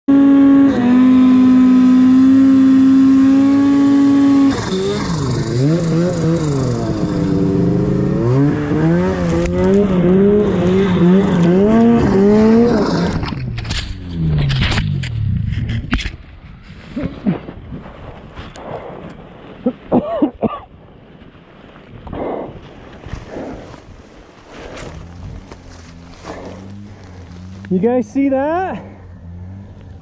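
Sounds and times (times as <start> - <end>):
snowmobile engine revving: 0.0 - 15.4, 24.4 - 30.0
rough rushing noise: 22.1 - 29.7.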